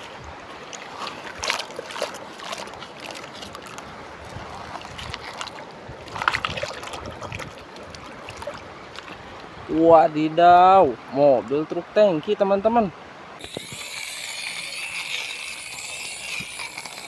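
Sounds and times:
shallow water washing: 0.0s - 12.2s, 12.8s - 17.0s
fingers scraping wet sand: 13.4s - 17.0s.

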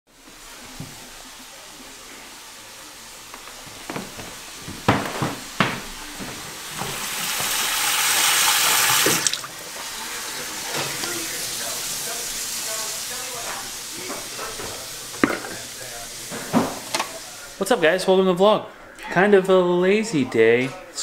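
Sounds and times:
faucet running into metal sink: 6.8s - 11.7s.

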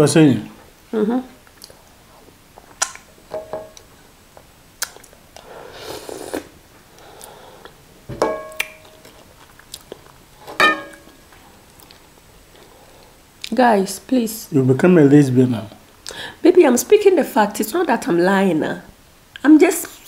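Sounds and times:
wet chewing and lip smacks: 1.5s - 1.9s, 2.6s - 3.1s, 4.8s - 5.5s, 8.6s - 10.2s
slurping: 5.6s - 6.5s.

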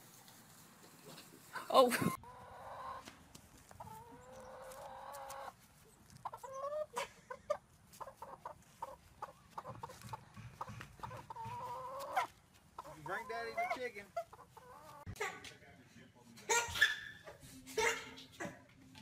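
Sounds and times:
hen clucking: 1.6s - 15.3s
hen calling: 3.8s - 5.6s, 6.2s - 15.0s.

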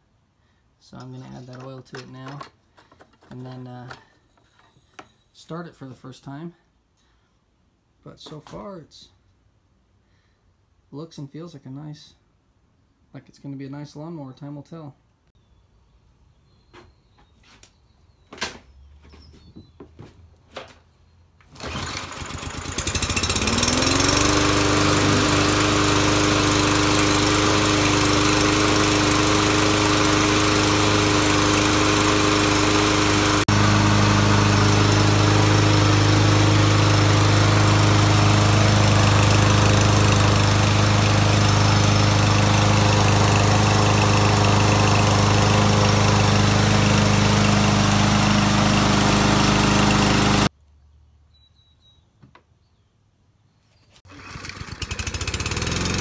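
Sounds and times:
lawn mower engine running: 1.0s - 4.9s, 21.4s - 50.5s, 54.1s - 56.0s.

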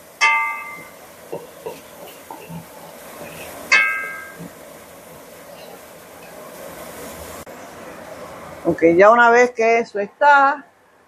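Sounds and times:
onion sizzling in oil: 0.0s - 8.7s
stirring taps and scrapes: 0.8s - 6.4s.

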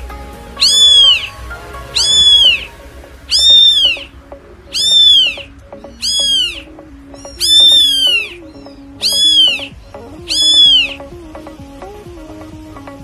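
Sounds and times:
faint background music: 0.0s - 13.0s
kittens meowing: 0.6s - 1.3s, 2.0s - 2.7s, 3.3s - 4.1s, 4.7s - 11.0s.

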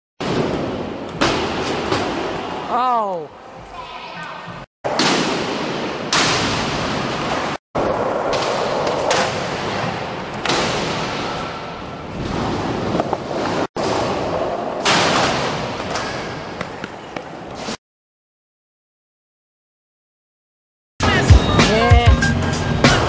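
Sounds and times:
skateboard wheels rolling on concrete: 7.1s - 10.5s, 11.8s - 14.8s.

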